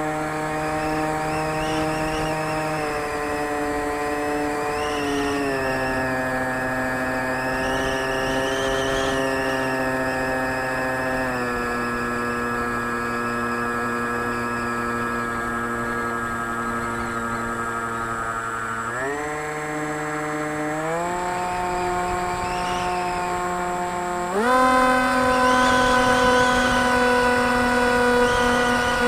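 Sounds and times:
model aircraft motor drone: 0.0 - 29.0.

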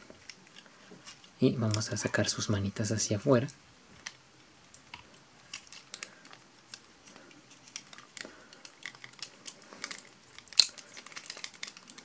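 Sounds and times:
plastic toy parts clicking: 4.0 - 6.9, 7.5 - 12.0.

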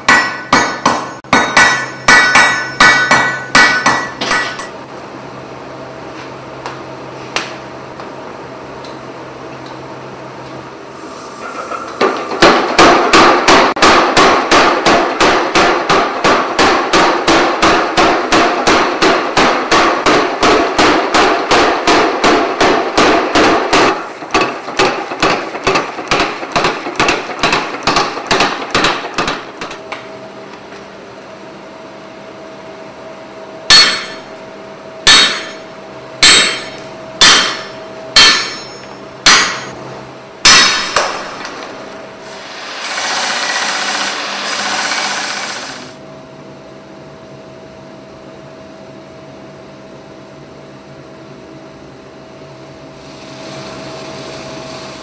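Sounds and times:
hand hammer striking anvil: 0.0 - 4.7, 12.0 - 29.8, 33.7 - 34.3, 35.1 - 39.8, 40.4 - 41.6
steady hum: 0.0 - 55.0.

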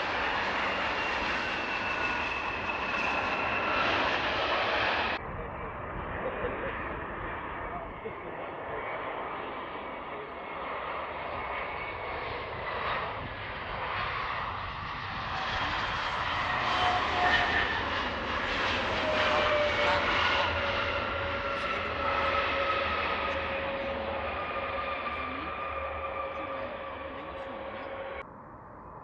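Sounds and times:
jet engine whine: 0.0 - 29.0.

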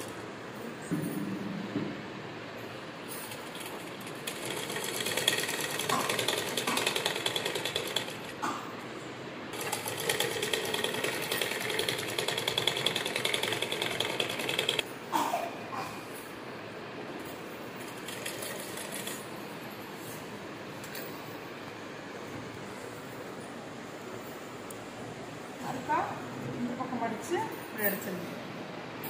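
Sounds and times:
sewing machine running fast: 3.4 - 8.4, 9.5 - 14.8, 17.8 - 19.3.

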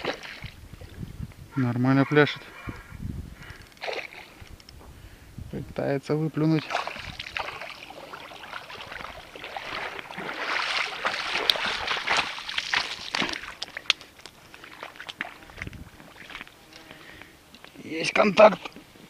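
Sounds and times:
feet wading through shallow water: 0.0 - 1.0, 3.8 - 4.4, 6.6 - 17.2.

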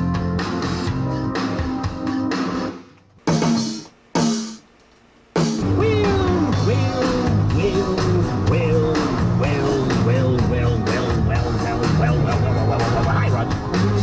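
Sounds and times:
guitar and drums music: 0.0 - 4.6, 5.3 - 14.0
low bass: 5.6 - 14.0.

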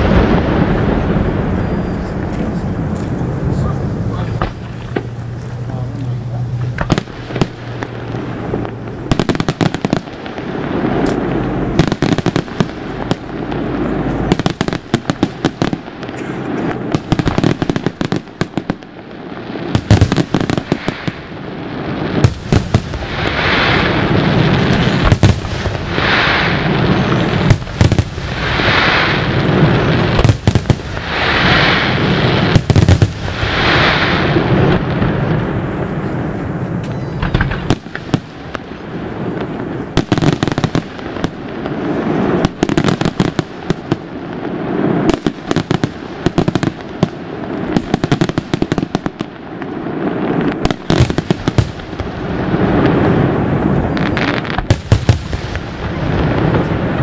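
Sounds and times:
rush of noise: 0.0 - 19.4
fireworks bangs: 0.0 - 57.0.

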